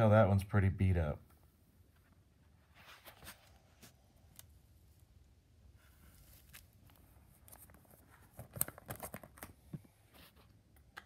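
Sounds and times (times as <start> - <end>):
plastic page rustling: 2.7 - 4.0, 5.8 - 10.5
plastic crinkling and clicks: 6.5 - 9.8.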